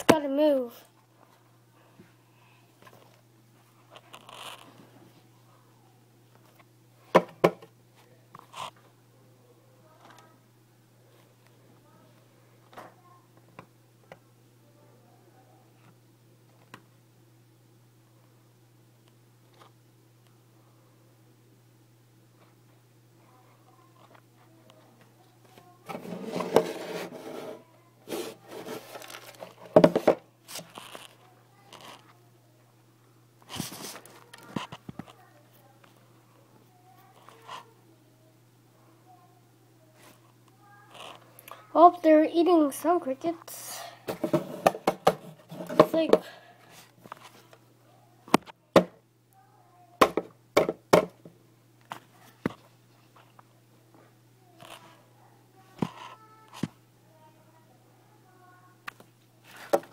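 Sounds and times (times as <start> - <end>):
handling noise rubbing and scraping: 25.6 - 32.2, 33.5 - 35.2, 44.1 - 47.5.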